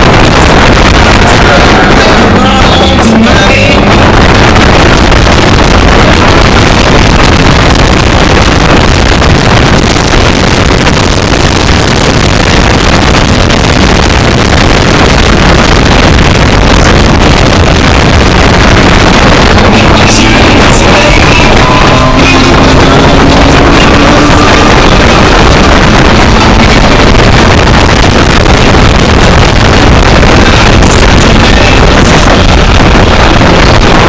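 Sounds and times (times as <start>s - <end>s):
wind noise: 0.0s - 34.0s.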